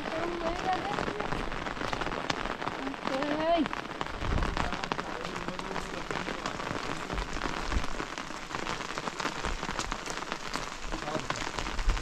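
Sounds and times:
rain pattering: 0:00.0 - 0:12.0.

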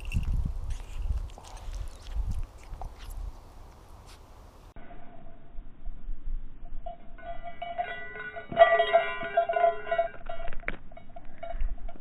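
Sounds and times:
small metal bell jingling: 0:06.8 - 0:12.0.

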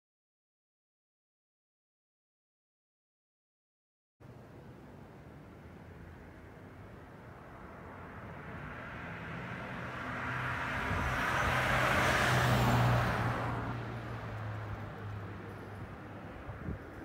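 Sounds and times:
jet airliner passing overhead: 0:07.2 - 0:17.0.

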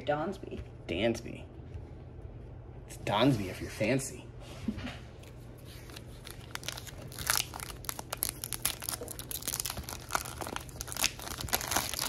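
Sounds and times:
foil wrapper crinkling and tearing: 0:05.8 - 0:12.0.

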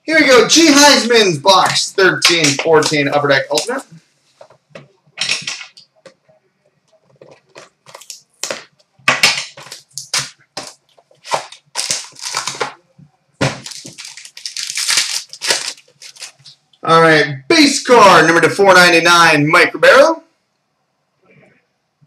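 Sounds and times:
plastic wrap crinkling and tearing: 0:06.9 - 0:08.8, 0:09.5 - 0:12.8, 0:13.4 - 0:16.6.

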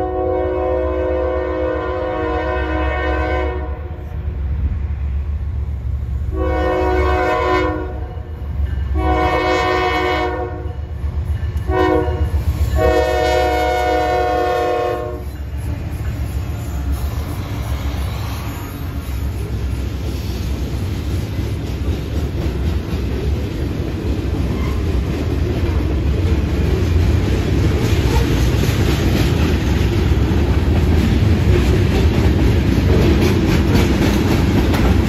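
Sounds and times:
train horn blasts: 0:00.0 - 0:04.1, 0:06.3 - 0:10.9, 0:11.6 - 0:15.3.

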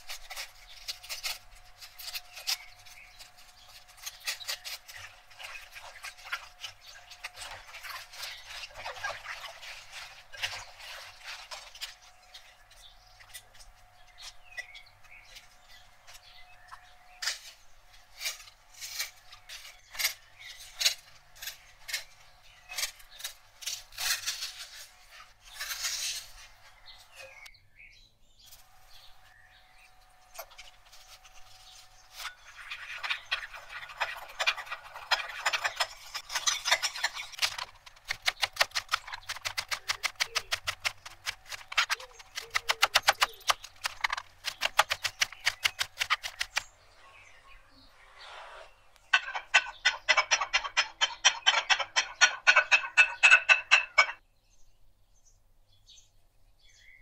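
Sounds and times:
knife cutting crisp lettuce: 0:00.0 - 0:12.0, 0:18.1 - 0:26.5, 0:30.4 - 0:46.7.

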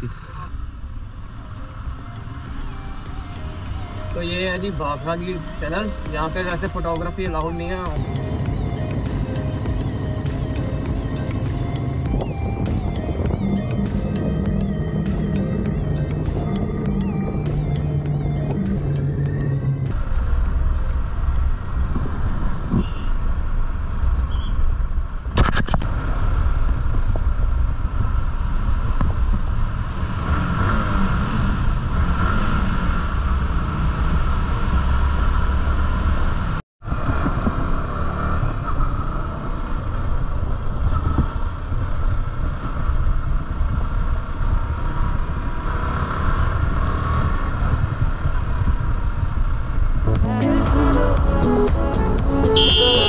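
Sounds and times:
motorcycle engine running: 0:03.3 - 0:23.1, 0:52.2 - 0:53.0
wind rush on microphone: 0:10.8 - 0:17.5, 0:20.0 - 0:35.7, 0:36.8 - 0:50.2.

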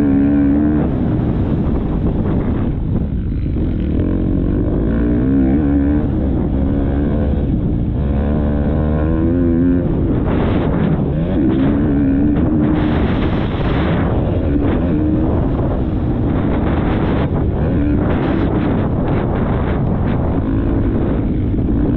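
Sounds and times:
motocross bike engine revving: 0:00.0 - 0:21.9
wind buffeting microphone: 0:00.0 - 0:21.9.

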